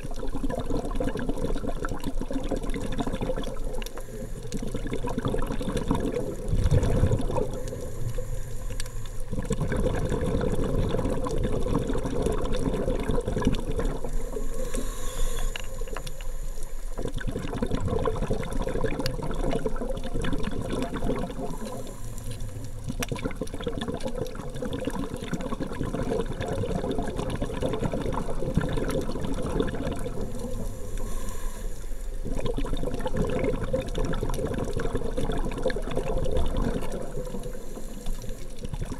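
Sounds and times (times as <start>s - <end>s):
muffled underwater sloshing: 0.0s - 38.9s.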